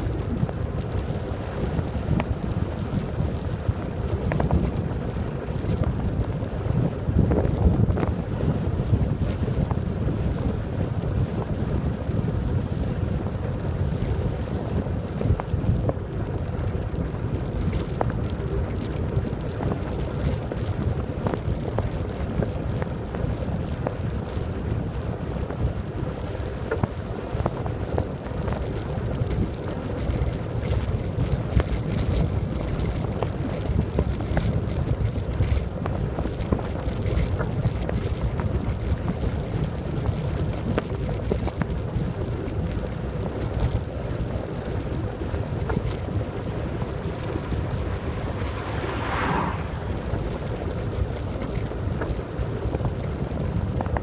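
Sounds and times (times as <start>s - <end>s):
bicycle tyre rolling on asphalt: 0.0s - 54.0s
wind buffeting microphone: 0.0s - 54.0s
van passing: 44.2s - 52.8s.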